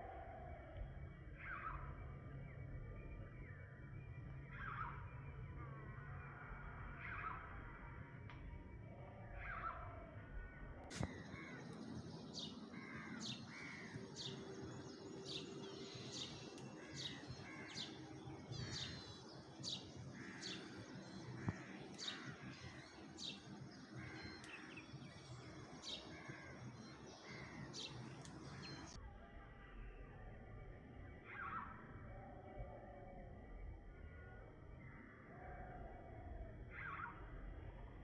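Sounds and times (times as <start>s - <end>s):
soft low bird calls: 8.9s - 29.0s
small birds chirping: 10.9s - 29.0s.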